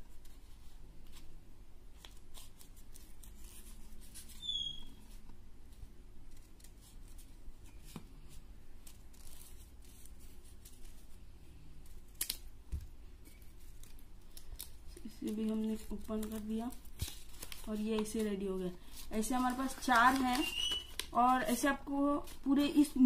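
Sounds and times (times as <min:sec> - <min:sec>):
scissors snipping paper: 0:13.6 - 0:18.4, 0:19.1 - 0:23.0.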